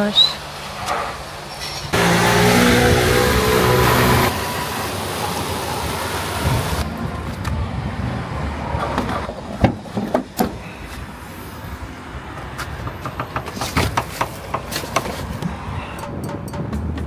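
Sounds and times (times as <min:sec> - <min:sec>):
motor vehicle road noise: 0:00.0 - 0:17.0.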